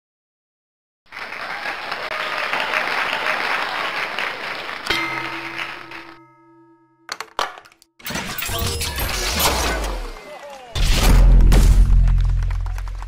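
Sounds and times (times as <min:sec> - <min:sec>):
audience applause: 0:01.1 - 0:06.2, 0:12.0 - 0:13.0
musical chord ringing: 0:04.9 - 0:07.2.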